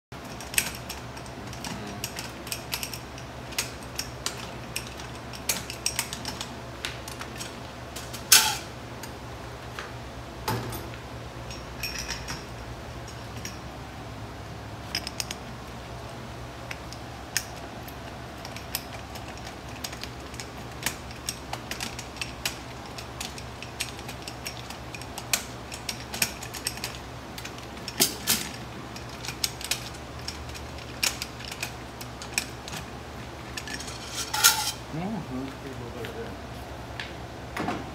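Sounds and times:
steady low hum: 0.1 - 37.9
coins clinking: 33.6 - 34.8.

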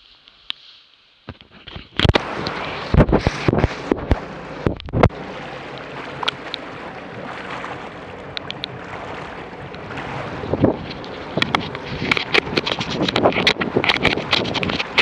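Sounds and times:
camera knocked and rubbed: 1.3 - 2.2, 2.9 - 5.1, 10.5 - 15.0
water and wind wash: 1.4 - 15.0
watercraft engine idling: 2.1 - 15.0
small clicks: 8.3 - 8.7.

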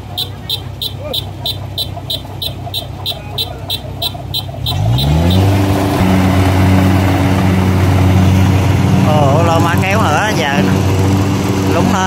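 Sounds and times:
combine harvester engine revving: 0.0 - 12.0
rhythmic ticking: 0.0 - 12.0.

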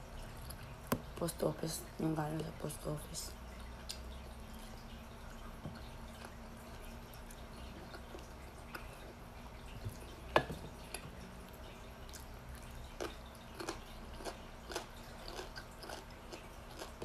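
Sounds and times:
wet chewing clicks and smacks: 10.9 - 17.0.

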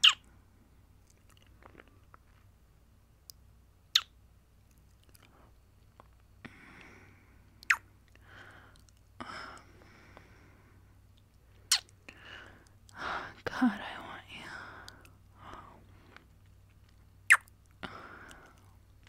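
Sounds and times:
lip clicks: 3.2 - 6.9, 7.6 - 10.3, 11.1 - 13.0, 14.8 - 18.7
soft breaths: 5.2 - 5.8, 6.4 - 17.0, 17.7 - 19.0
wet kiss smacks: 11.7 - 11.9.

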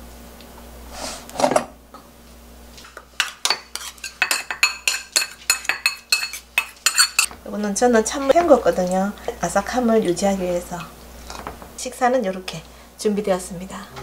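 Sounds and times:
metal spoon clinking in steel bowl: 3.2 - 7.3.

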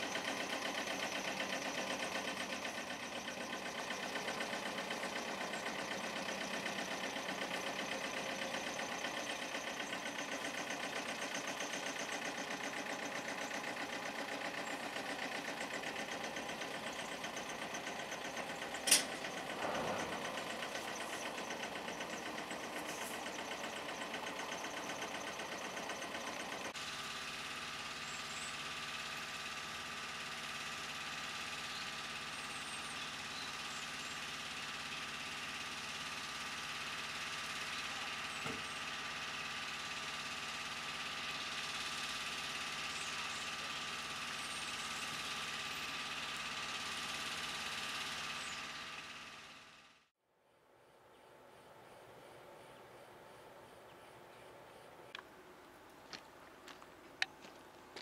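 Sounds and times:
diesel truck engine running: 0.0 - 50.1, 53.1 - 58.0
sharp click: 18.8 - 19.8.

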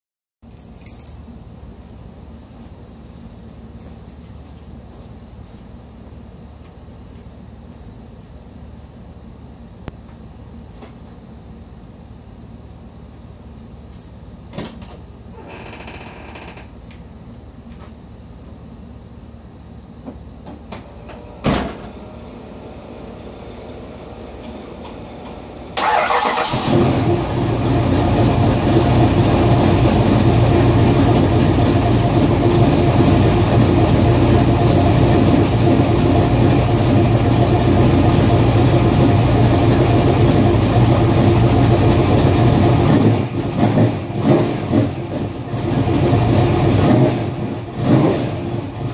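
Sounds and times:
car engine idling: 21.8 - 48.9
starter motor cranking: 25.8 - 26.9.

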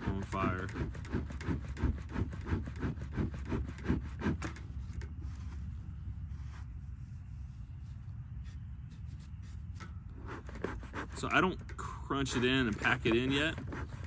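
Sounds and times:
bee smoker bellows puffing: 10.2 - 14.0.

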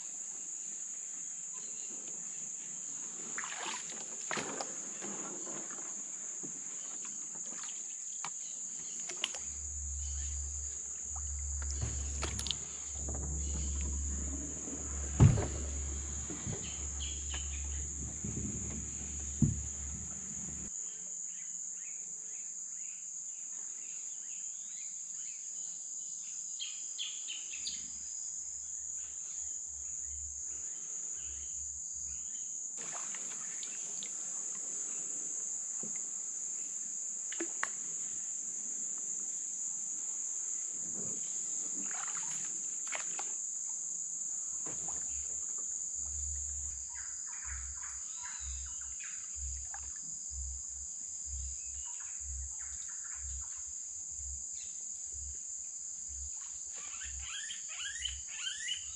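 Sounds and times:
insect chorus drone: 0.0 - 58.9
low rumble: 9.4 - 20.7
sharp knocks: 9.7 - 20.7.

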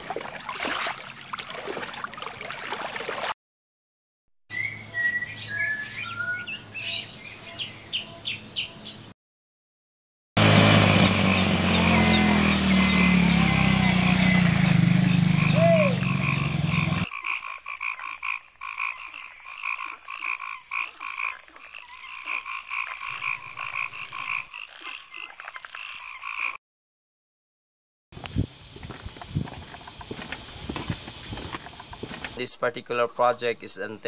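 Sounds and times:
frogs croaking: 11.2 - 26.6.

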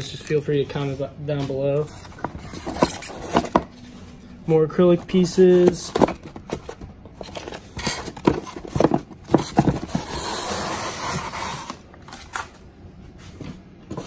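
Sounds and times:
styrofoam scraping: 4.8 - 11.8.

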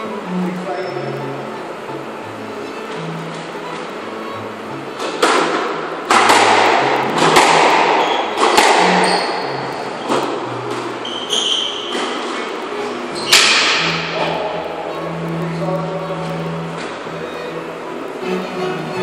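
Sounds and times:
shoes squeaking on wooden floor: 2.6 - 19.0
squash ball hit by rackets: 5.0 - 9.4, 13.3 - 14.2.

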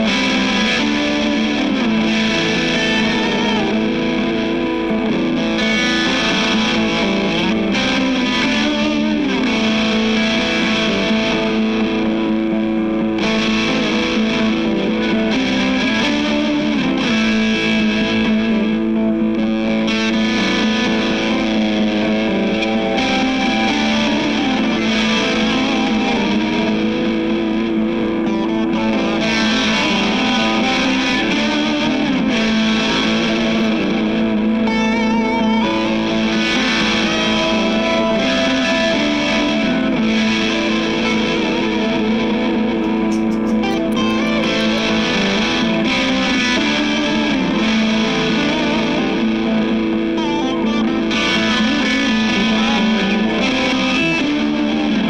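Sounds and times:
distorted electric guitar: 0.0 - 55.0.

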